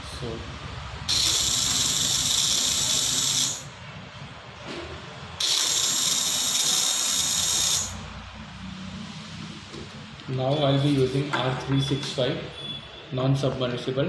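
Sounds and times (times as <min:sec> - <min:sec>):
small pump buzzing with high whine: 0:01.1 - 0:03.8, 0:05.4 - 0:08.1.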